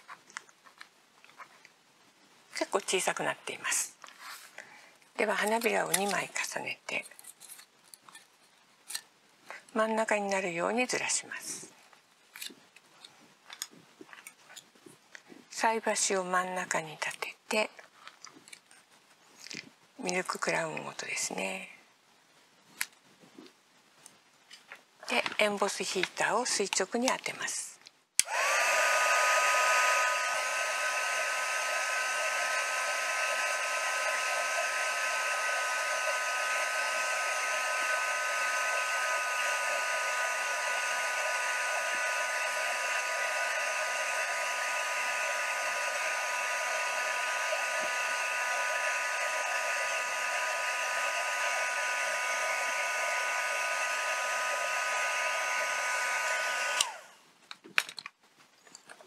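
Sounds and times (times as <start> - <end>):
heat gun whining: 28.2 - 57.2.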